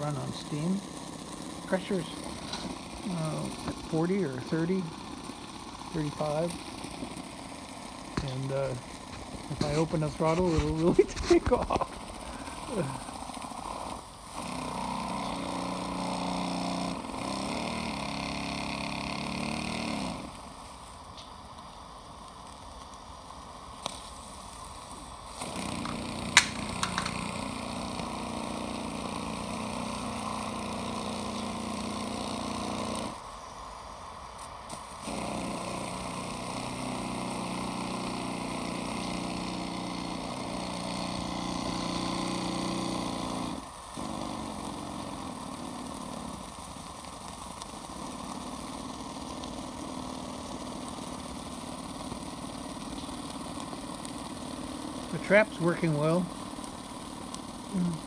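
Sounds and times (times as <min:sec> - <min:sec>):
steam engine humming: 0:00.0 - 0:58.0
sharp clicks: 0:25.8 - 0:27.4.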